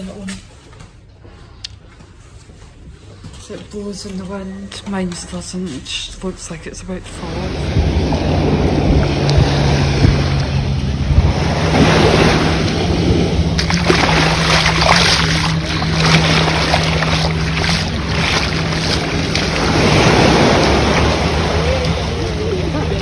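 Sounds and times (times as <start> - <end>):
low hum: 0.0 - 23.0
sea waves washing over sand: 7.2 - 23.0.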